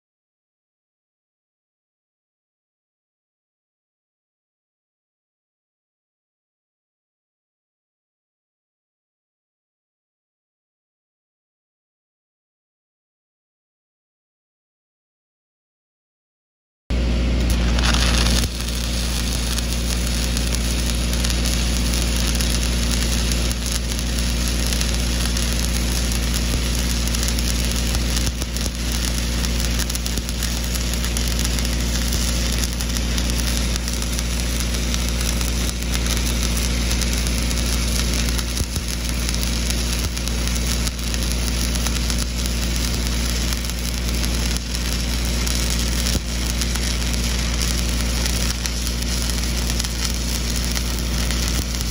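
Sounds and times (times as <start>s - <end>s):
welding arc crackling: 16.9s - 51.9s
welding machine engine hum: 16.9s - 51.9s.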